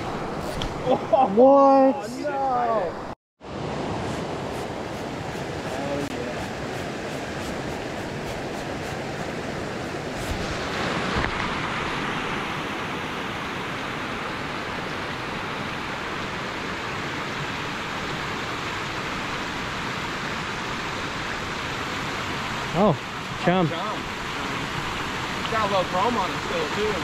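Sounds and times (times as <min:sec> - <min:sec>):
river rushing over rocks: 0:09.0 - 0:27.0.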